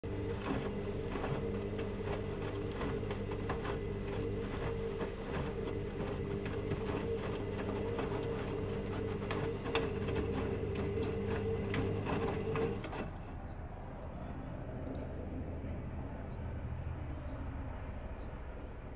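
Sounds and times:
wet laundry sloshing and knocking: 0.0 - 13.6
washing machine motor hum: 0.0 - 18.0.

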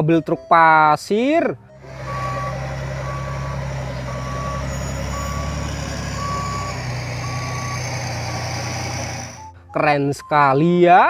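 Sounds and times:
diesel engine running: 1.6 - 9.8
reversing alarm beeping: 1.7 - 10.3.

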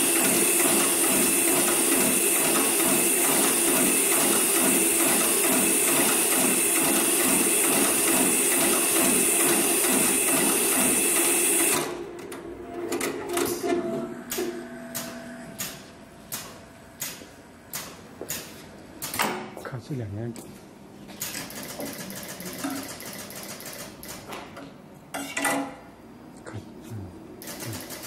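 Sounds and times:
rhythmic machine stitching: 0.0 - 12.0, 21.3 - 24.3, 27.4 - 28.0.

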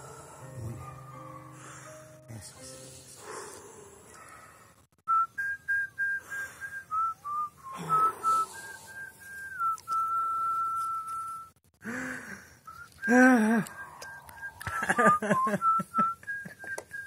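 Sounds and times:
person whistling a slow tune: 5.1 - 11.6, 12.6 - 17.0
short vocal sound: 7.6 - 9.1.

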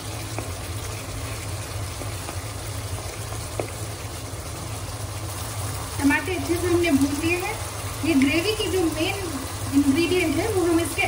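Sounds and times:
gravy bubbling and sizzling in pot: 0.0 - 11.0
wooden spoon tapping pot: 3.0 - 3.8.

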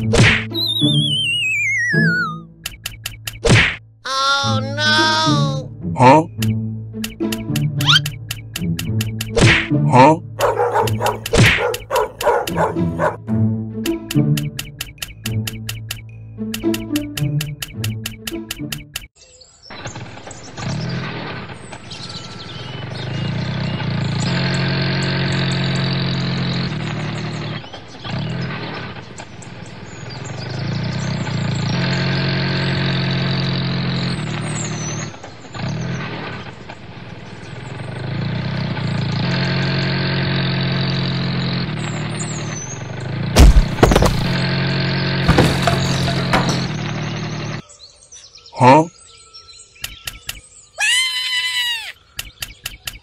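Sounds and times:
engine running in cycles: 22.0 - 47.6
sharp loud knocks: 43.4 - 44.4, 45.2 - 47.2.

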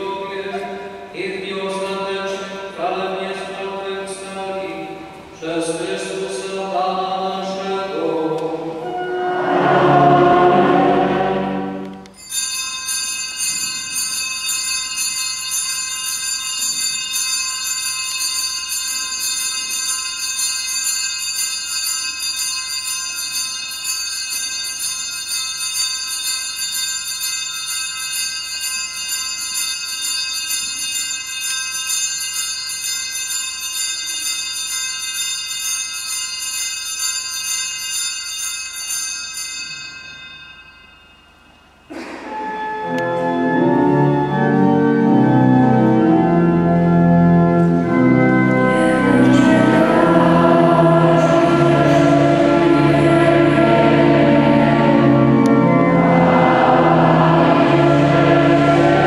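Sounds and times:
church singing: 0.0 - 12.2, 42.2 - 59.0
small altar bells ringing: 10.3 - 43.0, 44.5 - 59.0.

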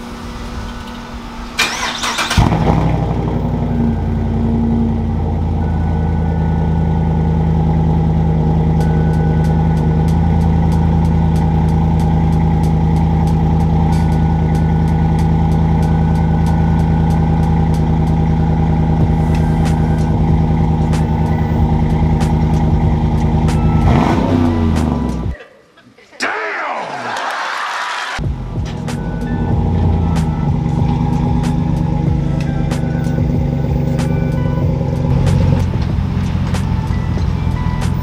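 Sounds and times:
engine starting and idling: 0.4 - 8.7.

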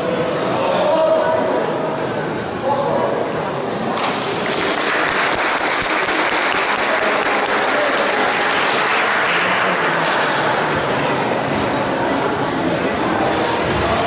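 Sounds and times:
children applauding: 4.0 - 10.7.

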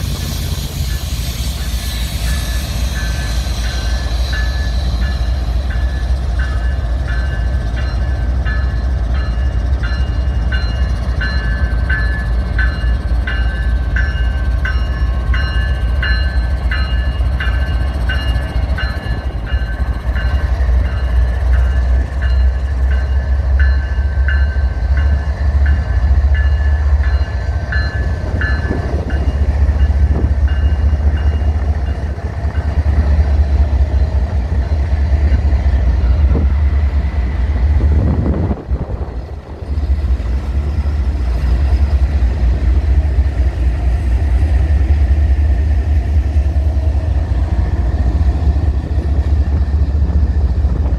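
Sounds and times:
locomotive bell ringing: 0.0 - 33.2
diesel locomotive engine rumble: 0.0 - 50.9.

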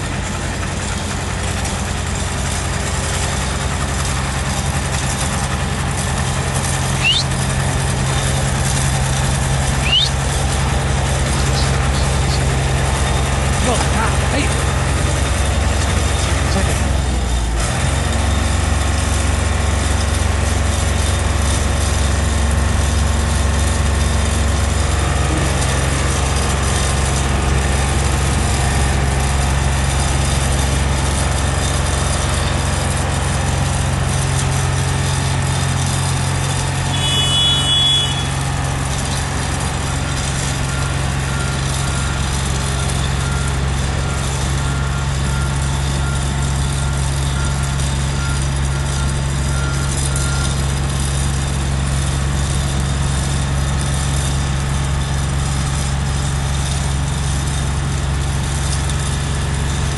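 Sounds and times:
diesel engine running: 0.0 - 59.9
short high-pitched tone: 7.0 - 7.3, 9.8 - 10.2
faint high beeping: 7.0 - 7.4, 9.8 - 10.4.

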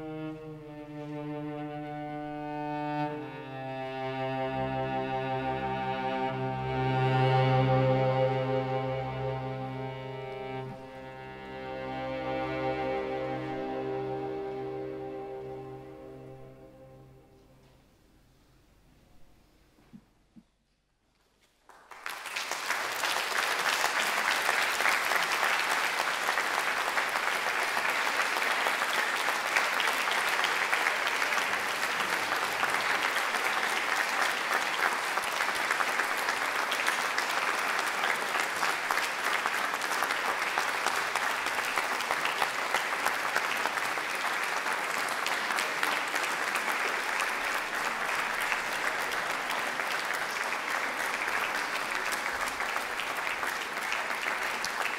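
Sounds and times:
audience applauding: 21.6 - 54.9.

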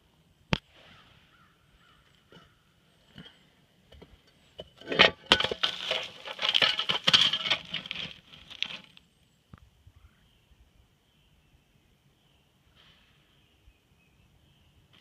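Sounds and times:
metal scraping on ballast stones: 2.2 - 9.1.

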